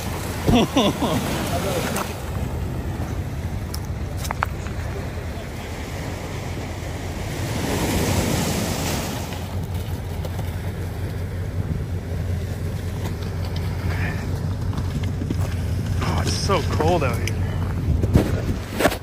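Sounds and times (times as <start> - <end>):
vehicle engine running: 0.0 - 19.0
wind buffeting microphone: 14.2 - 19.0.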